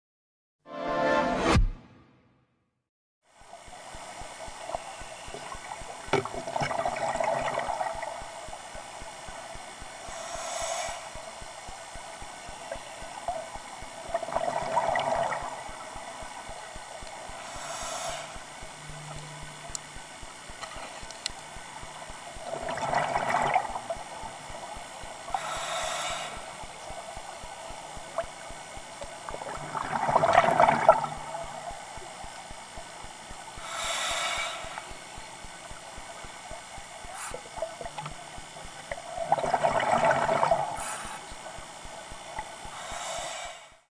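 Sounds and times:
bubbling exhale underwater: 5.3 - 8.3, 14.0 - 15.9, 22.4 - 24.2, 29.2 - 31.8, 37.2 - 41.2
hissing regulator inhale: 9.8 - 11.6, 17.3 - 19.5, 25.2 - 27.2, 33.6 - 35.2, 37.0 - 37.6, 40.6 - 41.4, 42.6 - 43.9.

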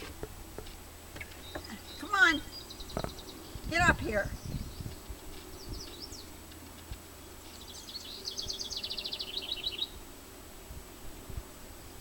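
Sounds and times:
songbird chirping and trilling: 1.2 - 10.0.

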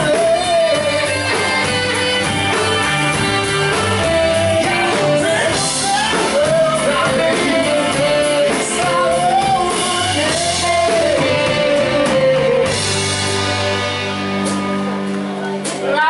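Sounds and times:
man singing into microphone: 0.0 - 1.6, 3.8 - 13.1
blues-rock band playing: 0.0 - 16.0.

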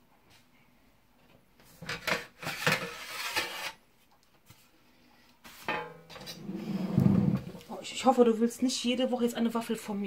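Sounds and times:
baking plate clattering and scraping: 1.8 - 3.7, 5.6 - 7.6.

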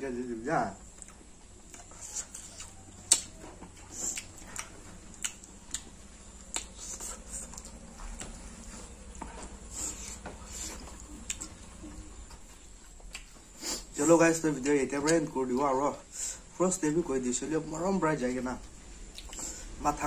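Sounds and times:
wet mouth clicks and chewing: 0.9 - 8.4, 9.9 - 13.8, 19.1 - 19.6.

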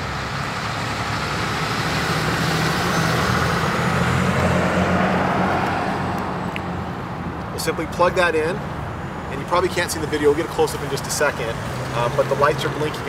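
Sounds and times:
pickup truck driving past: 0.0 - 6.6.

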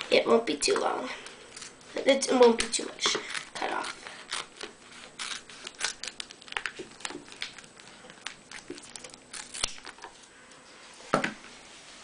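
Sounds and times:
scissors snipping duct tape: 2.6 - 7.6.

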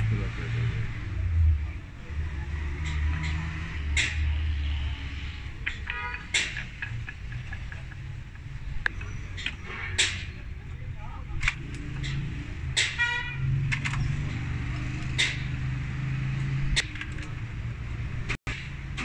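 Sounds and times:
metal clicks and taps of hand tools: 5.6 - 10.3, 11.4 - 12.2, 16.4 - 17.4.

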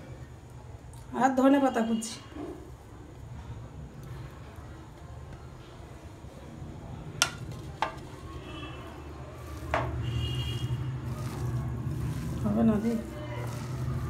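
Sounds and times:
hand mixing filling in bowl: 7.4 - 14.0.

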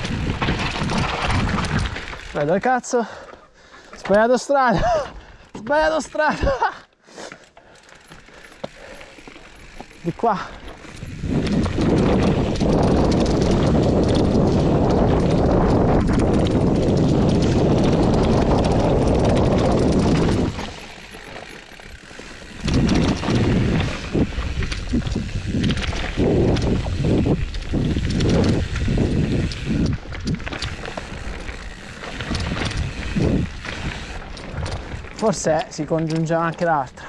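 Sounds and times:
wind rushing over microphone: 0.0 - 2.3, 10.2 - 35.4
bike tyres rolling on dirt: 0.0 - 37.0
bike knocks and rattles: 7.8 - 36.7.

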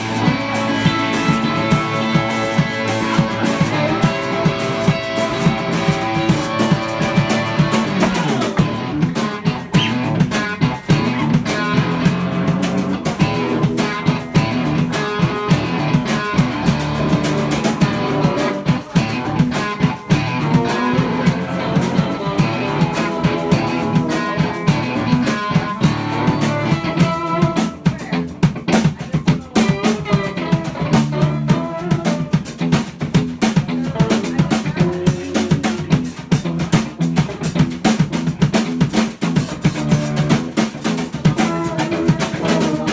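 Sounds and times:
drum kit beat: 0.0 - 42.9
electric guitar: 0.0 - 42.9.

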